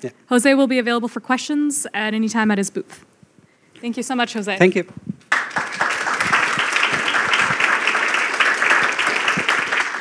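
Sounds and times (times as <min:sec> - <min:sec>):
audience applauding: 0:05.3 - 0:10.0.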